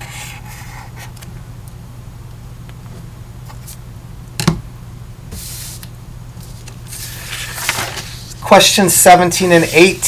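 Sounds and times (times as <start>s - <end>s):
low electrical hum: 0.0s - 10.0s
paper rustling: 5.4s - 10.0s.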